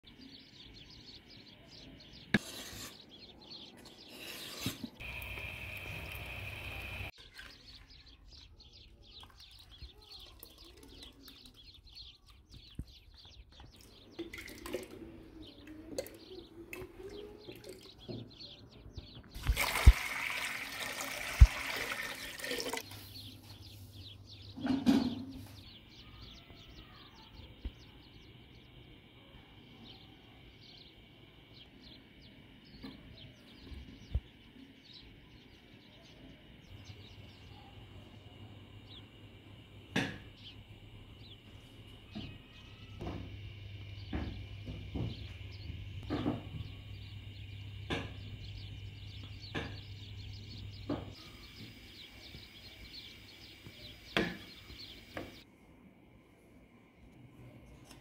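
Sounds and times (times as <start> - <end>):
birds chirping: 0.0 - 55.5
liquid pouring and splashing: 19.4 - 22.8.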